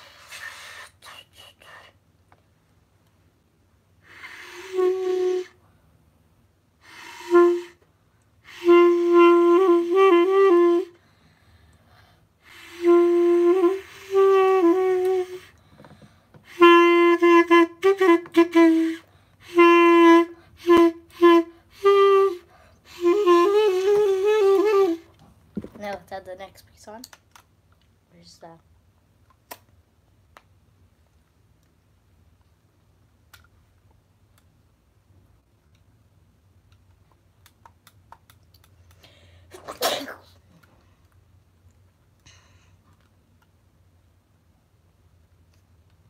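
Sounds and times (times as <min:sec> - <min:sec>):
clarinet short notes: 0:16.5 - 0:25.1.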